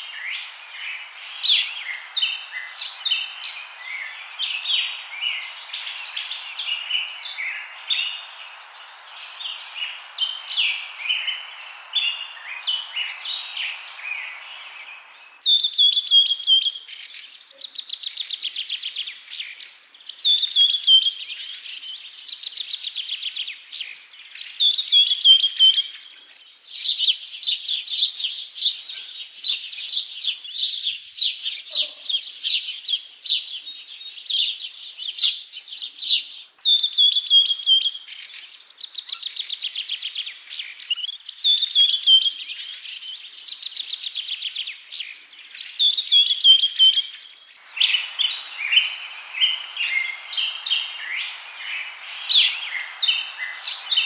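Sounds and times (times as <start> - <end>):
dense rapid bird chirping: 0.0 - 18.2, 45.1 - 54.0
bird whistle and trill: 15.4 - 16.8, 36.6 - 38.0, 45.7 - 54.0.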